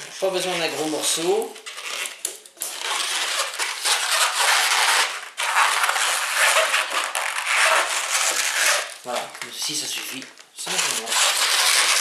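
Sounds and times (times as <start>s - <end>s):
balloon rubbing while twisted: 0.0s - 12.0s.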